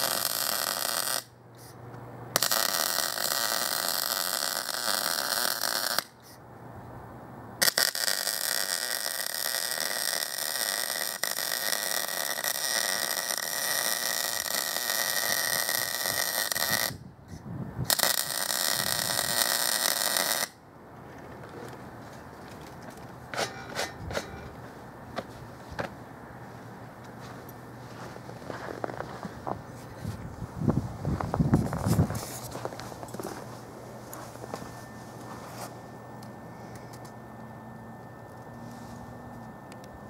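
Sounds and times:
arc welding crackling hiss: 0:00.0 - 0:01.8, 0:02.4 - 0:06.4, 0:07.6 - 0:17.0, 0:17.9 - 0:20.6.

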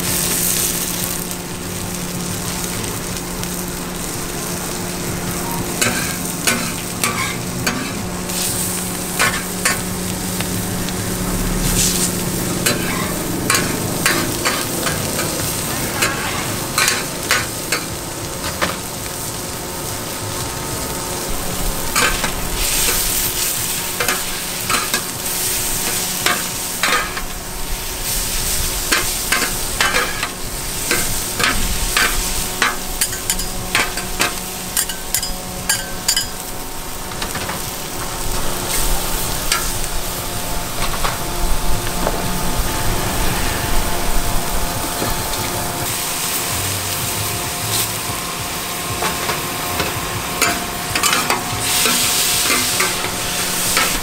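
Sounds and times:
steady low hum: 0:00.0 - 0:37.2, 0:37.8 - 0:54.0
food sizzling in a pan: 0:00.0 - 0:54.0
metal spatula scraping a pan: 0:05.8 - 0:09.9, 0:11.6 - 0:18.8, 0:22.0 - 0:27.4, 0:28.0 - 0:36.4, 0:49.0 - 0:54.0.

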